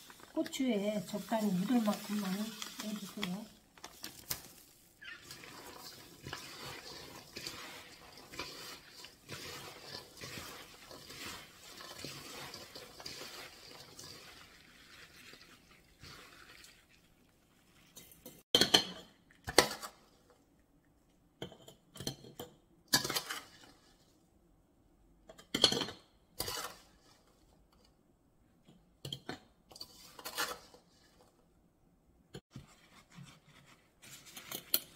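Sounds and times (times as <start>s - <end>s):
gritty rustling in a bowl: 0.0s - 18.3s, 29.8s - 31.4s, 32.5s - 34.9s.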